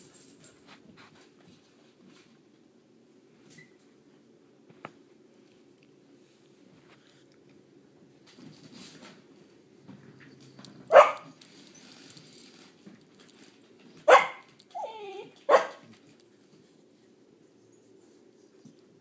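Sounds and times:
puppy barking: 10.9 - 11.4, 14.1 - 15.9
puppy whining: 14.1 - 15.8.

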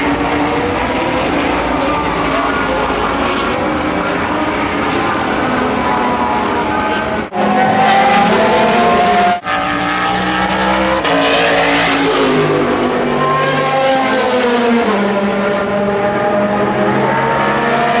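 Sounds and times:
race car engines: 0.0 - 18.0.

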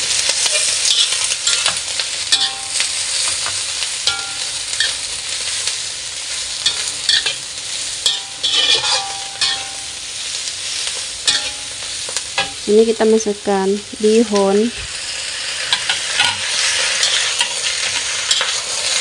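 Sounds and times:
cabbage sizzling in a wok: 0.0 - 19.0
metal spatula scraping a wok: 0.3 - 5.7, 6.6 - 12.6, 15.6 - 19.0.

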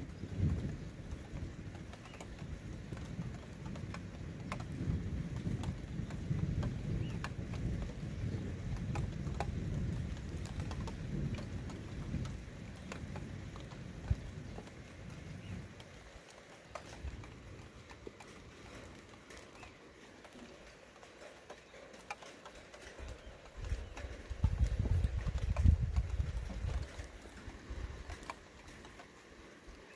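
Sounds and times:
low thunder rumble: 0.0 - 15.9, 23.0 - 28.2
rain pattering: 0.0 - 29.9.

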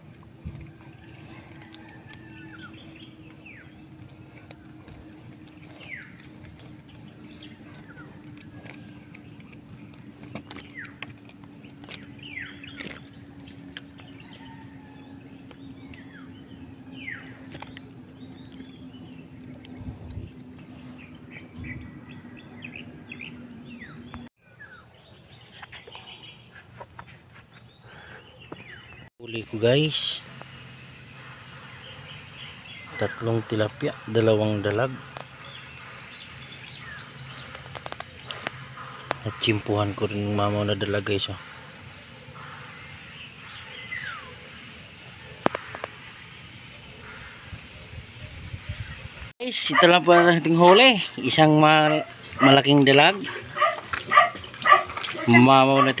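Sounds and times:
high-pitched insect drone: 0.0 - 24.1
low hum: 0.0 - 24.3
birds chirping: 0.0 - 56.0.

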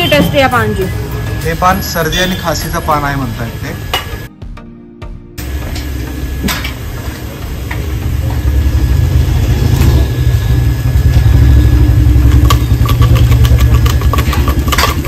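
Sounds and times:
engine rumbling: 5.4 - 15.0.

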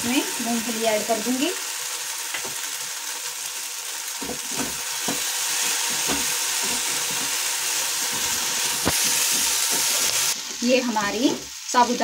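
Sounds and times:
food sizzling in a frying pan: 0.0 - 12.0.

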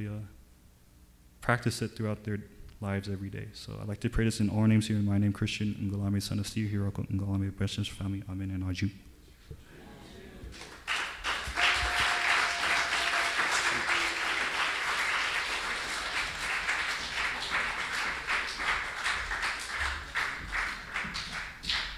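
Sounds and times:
audience applauding: 10.5 - 21.9.

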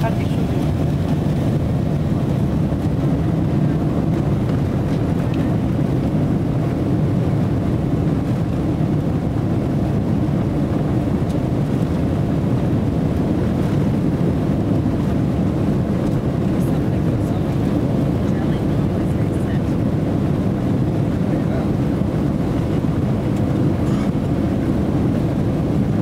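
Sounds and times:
jet engines heard from cabin: 0.0 - 26.0.

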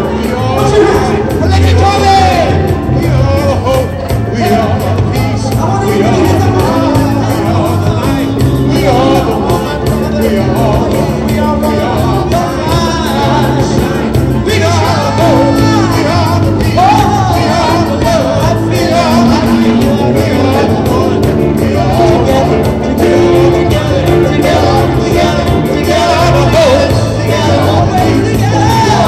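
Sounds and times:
held bass notes: 0.0 - 29.0
live band with steady beat: 0.0 - 29.0
person singing: 0.0 - 29.0.

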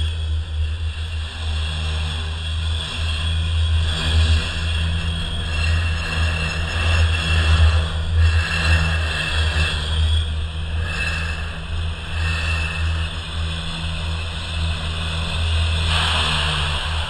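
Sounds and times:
diesel locomotive drone: 0.0 - 17.0.

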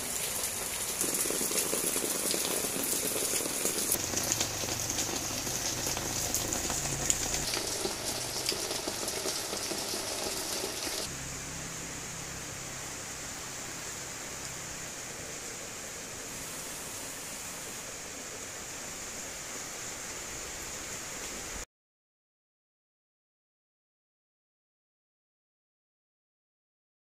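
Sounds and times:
raindrops ticking: 0.0 - 11.1
rain falling: 0.0 - 21.7.

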